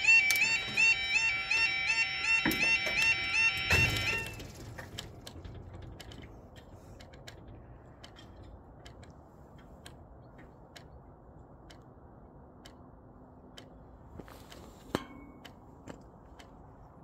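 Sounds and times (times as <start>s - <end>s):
low background rumble: 4.8s - 14.2s
faint irregular clicks: 4.9s - 17.0s.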